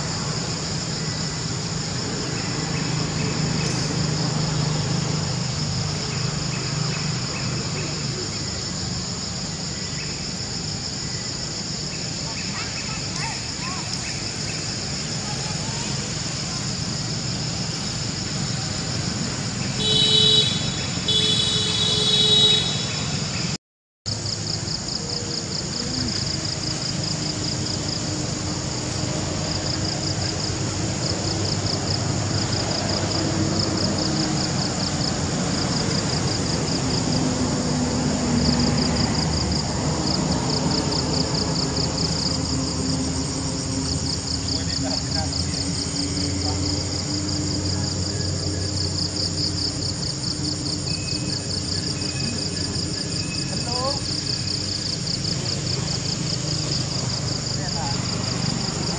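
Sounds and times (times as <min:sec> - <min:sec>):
insects chirping: 0:00.0 - 0:58.9
vehicle horn honking: 0:19.8 - 0:23.2.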